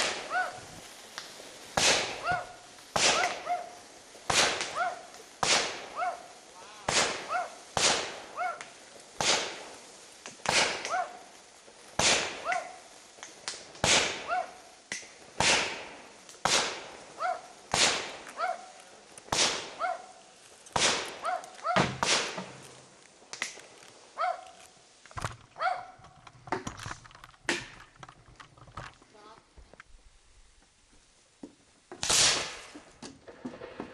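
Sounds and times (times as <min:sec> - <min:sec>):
firework bangs: 0:00.0 - 0:24.1, 0:31.9 - 0:33.9
dog barking in short yelps: 0:03.2 - 0:03.8, 0:04.8 - 0:05.1, 0:06.0 - 0:06.3, 0:14.3 - 0:14.6, 0:17.2 - 0:17.5, 0:18.4 - 0:18.7, 0:19.8 - 0:20.1, 0:21.2 - 0:21.8, 0:24.2 - 0:24.6, 0:25.6 - 0:26.0.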